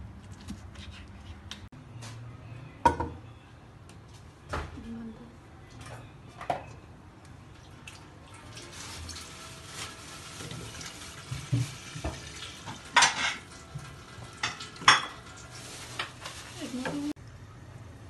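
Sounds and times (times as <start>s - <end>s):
water pouring into a pot: 7.6s - 16.6s.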